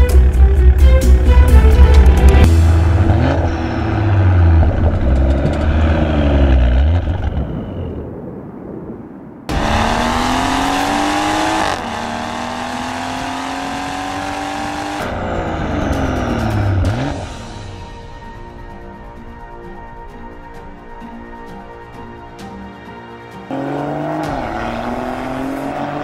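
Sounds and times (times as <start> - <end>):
car engine revving: 0.0 - 7.9, 9.5 - 17.6, 23.5 - 26.0
car accelerating hard: 2.0 - 7.9, 9.5 - 17.4, 23.5 - 26.0.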